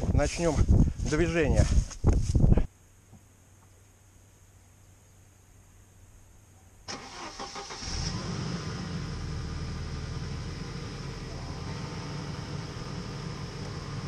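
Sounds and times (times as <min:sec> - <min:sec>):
car engine cranking and starting: 0:06.9 - 0:14.0.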